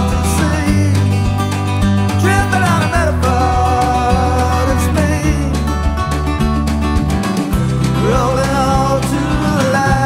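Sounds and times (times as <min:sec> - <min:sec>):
bass line: 0:00.0 - 0:10.0
fingerpicked acoustic guitar: 0:00.0 - 0:10.0.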